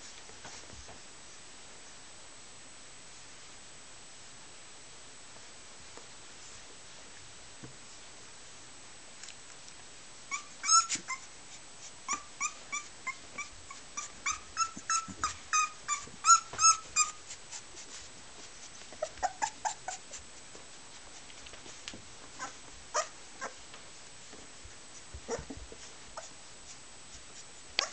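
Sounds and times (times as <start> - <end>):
puppy whimpering and squealing: 10.3 - 11.3, 12.1 - 17.3, 19.0 - 20.2, 22.4 - 23.6, 25.3 - 25.6
puppy whining: 10.3 - 17.6, 18.9 - 20.2, 22.3 - 23.6, 25.2 - 26.4.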